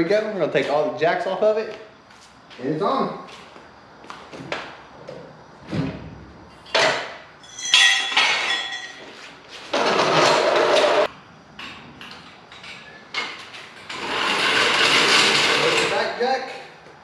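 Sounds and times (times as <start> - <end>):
steady harsh noise: 13.8 - 16.5.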